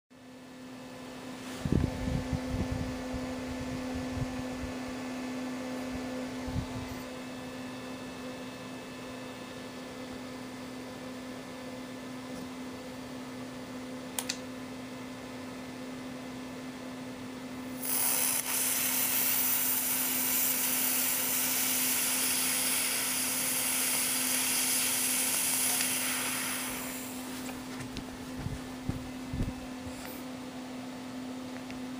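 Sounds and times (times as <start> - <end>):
low electrical hum: 0.1 - 31.9
loud electrical hiss: 17.8 - 27.3.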